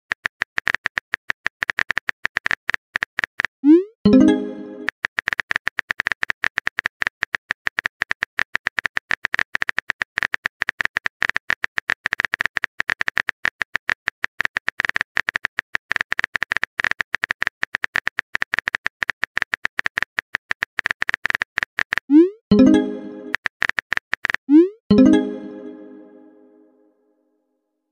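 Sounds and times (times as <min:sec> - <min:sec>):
keyboard typing clicks: 0:04.1 - 0:13.2, 0:14.4 - 0:26.2.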